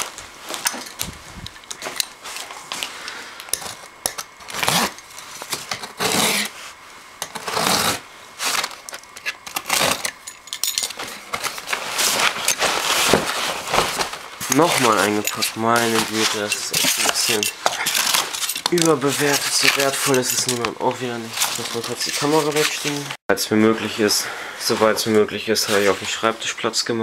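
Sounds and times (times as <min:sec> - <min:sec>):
packing material rustling: 0:00.0 - 0:23.2
cardboard flaps scraping: 0:11.2 - 0:15.0.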